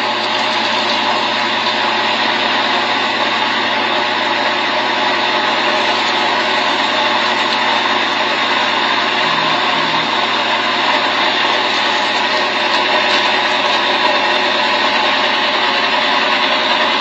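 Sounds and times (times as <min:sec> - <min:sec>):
boat engine running: 0:09.2 - 0:12.7.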